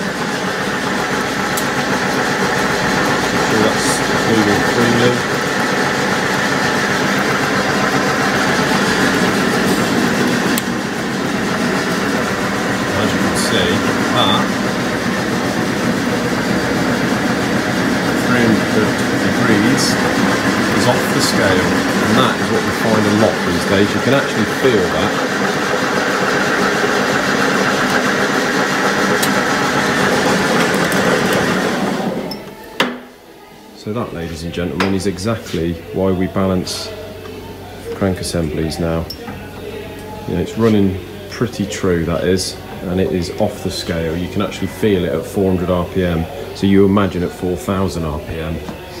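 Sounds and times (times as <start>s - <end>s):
balancing machine spinning crankshaft: 0.0s - 32.4s.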